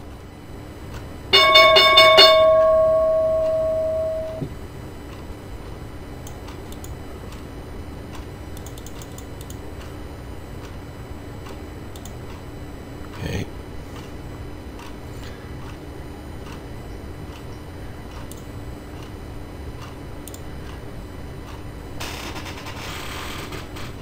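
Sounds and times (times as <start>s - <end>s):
bell ringing: 1.3s - 4.5s.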